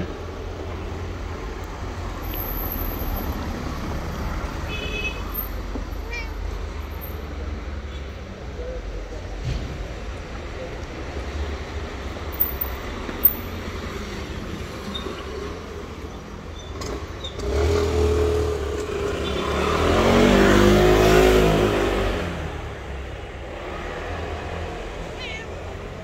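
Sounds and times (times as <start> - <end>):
low traffic rumble: 0.0 - 26.0.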